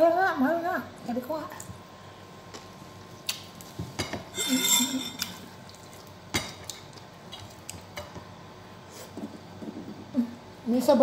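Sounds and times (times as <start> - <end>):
clinks against plate: 4.0 - 5.4
person chewing food: 5.3 - 8.0.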